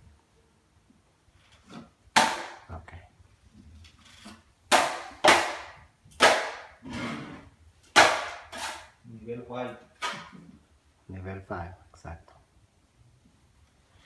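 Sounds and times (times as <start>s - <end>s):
drywall blade scraping a hawk: 6.8s - 8.9s.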